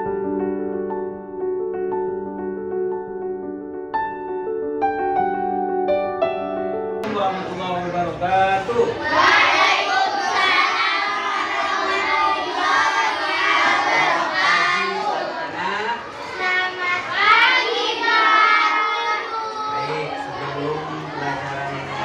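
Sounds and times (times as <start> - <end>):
children singing together: 8.8 - 22.0.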